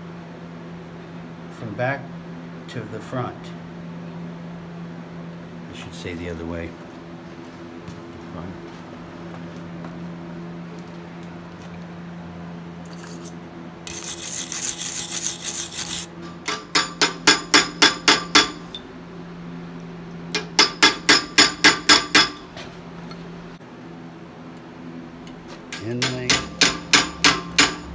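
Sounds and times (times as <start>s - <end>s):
steady low hum: 0.0s - 27.9s
wire brush scrubbing steel: 13.0s - 17.0s, 25.8s - 26.6s
hammer striking a chisel: 16.2s - 18.8s, 20.3s - 22.5s, 25.7s - 27.9s.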